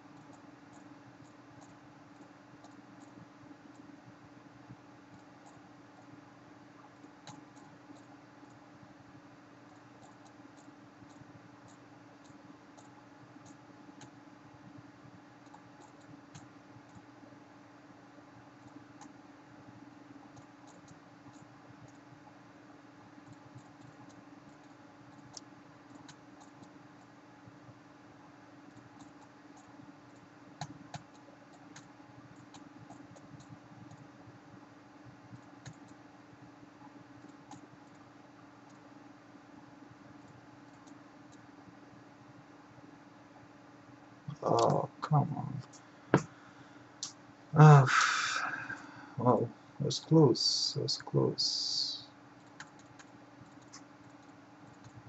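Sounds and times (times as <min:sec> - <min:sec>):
steady low hum: 0:00.0 - 0:55.0.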